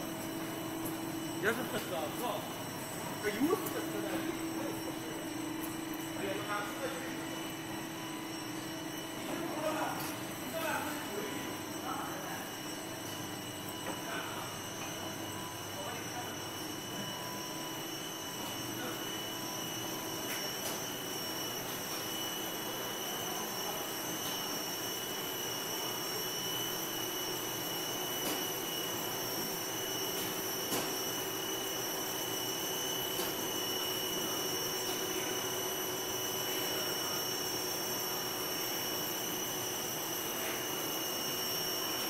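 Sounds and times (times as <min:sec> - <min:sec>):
machine motors and rollers: 0:00.0 - 0:42.0.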